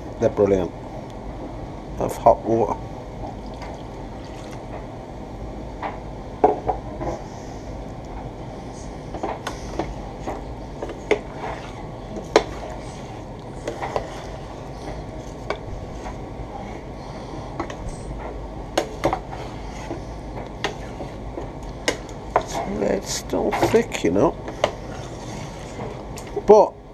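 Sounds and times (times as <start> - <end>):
metal spoon scraping a pot: 11.1 - 14.5.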